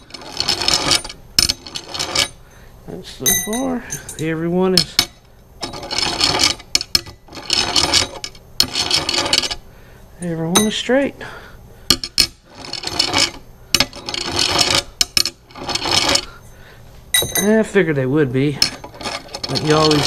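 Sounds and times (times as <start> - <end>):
metal rods rolling on glass: 0.0 - 2.4, 3.2 - 9.6, 12.0 - 16.3, 18.4 - 20.0.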